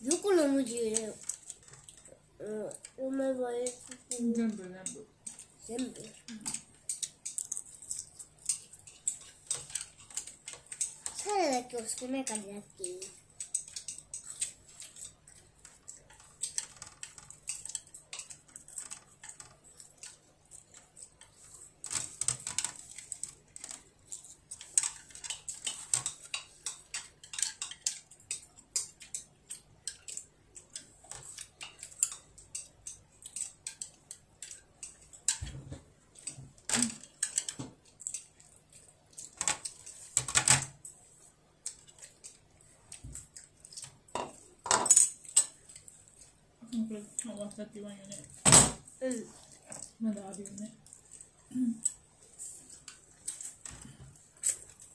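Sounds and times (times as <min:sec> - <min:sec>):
chopsticks tapping on a plate: 0:12.3 - 0:21.3, 0:21.9 - 0:40.6.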